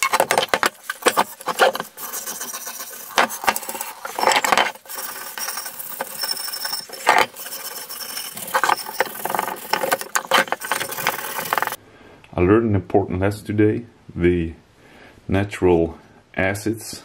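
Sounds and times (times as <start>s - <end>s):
hand brush scrubbing metal: 0.0s - 11.8s.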